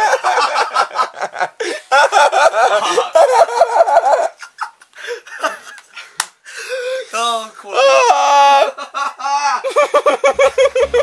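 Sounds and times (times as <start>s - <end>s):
young men laughing: 0.0s - 6.2s, 8.5s - 11.0s.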